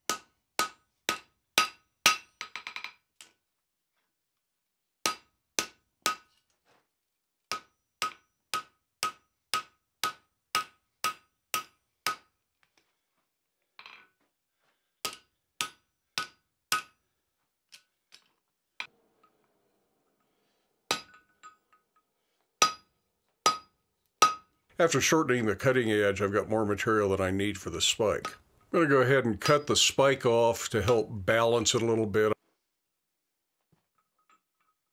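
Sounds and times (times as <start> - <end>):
hammer striking hot metal on anvil: 7.5 - 12.3, 20.9 - 21.6, 22.6 - 24.5.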